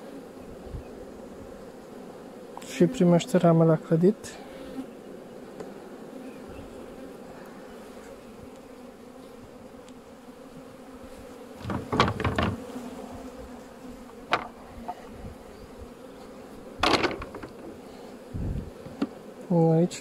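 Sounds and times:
honeybees humming: 0.0s - 20.0s
hive tool knocking on frames: 11.5s - 12.8s, 14.0s - 15.0s, 16.6s - 17.8s, 18.7s - 19.2s.

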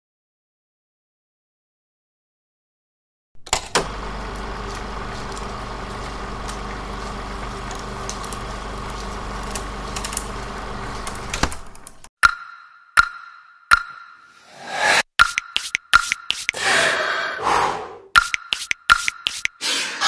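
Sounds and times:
movie camera motor whirring: 3.7s - 12.0s.

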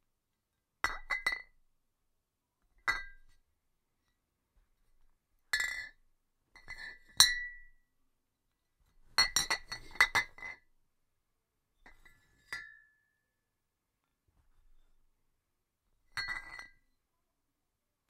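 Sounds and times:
glass bottle clinks: 16.2s - 16.8s.

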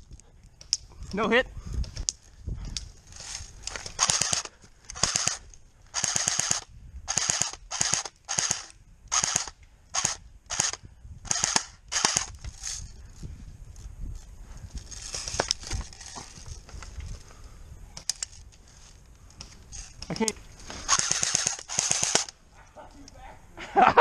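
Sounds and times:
airsoft rifle full-auto bursts: 4.0s - 12.3s, 20.9s - 22.3s.

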